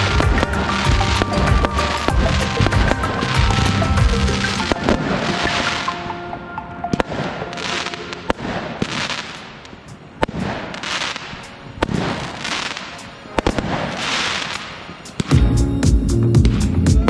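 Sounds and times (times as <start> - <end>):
loud bass-heavy music: 0.0 - 5.4, 15.2 - 17.0
firework bangs: 0.0 - 6.2, 6.9 - 15.6
firework hissing rush: 7.6 - 15.4.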